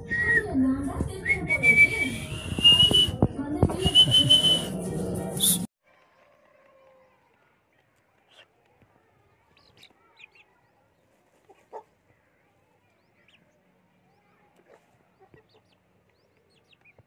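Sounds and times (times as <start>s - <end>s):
chickens softly clucking: 11.1s - 12.0s
chicks peeping: 14.6s - 17.0s.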